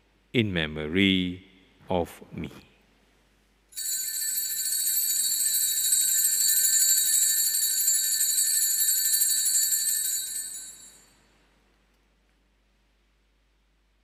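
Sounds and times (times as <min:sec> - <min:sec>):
small bells jangling: 0:03.8 - 0:11.3.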